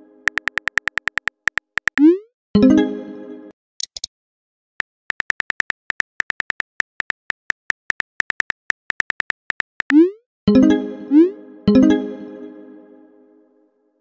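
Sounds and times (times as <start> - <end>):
keyboard tap clicks: 0.3 - 2.1.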